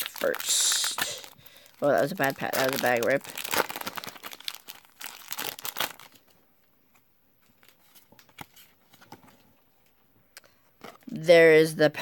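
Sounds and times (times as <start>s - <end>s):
foil wrapper crinkling: 0.0s - 6.4s.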